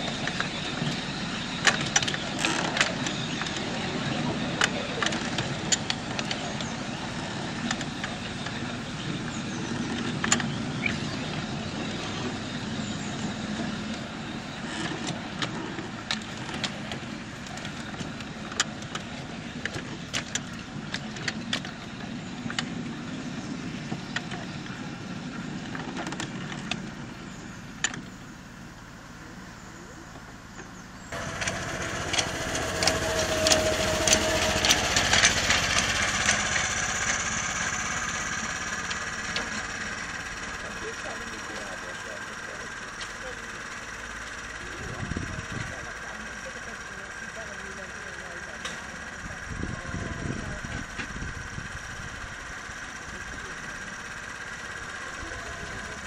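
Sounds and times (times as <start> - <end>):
sharp clicks and rattles: 0.0 - 11.5, 12.1 - 27.1, 30.5 - 56.0
small locomotive engine hum: 0.0 - 56.0
wheels rumbling on rail: 0.0 - 56.0.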